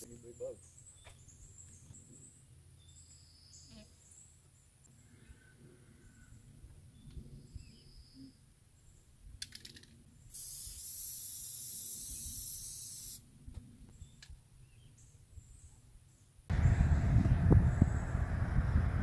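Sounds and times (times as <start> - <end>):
aerosol spray can hissing: 10.3 - 13.2.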